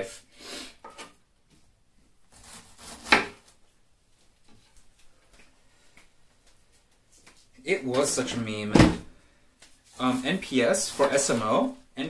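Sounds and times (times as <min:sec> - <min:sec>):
knife cutting cabbage: 0:02.3 - 0:03.6.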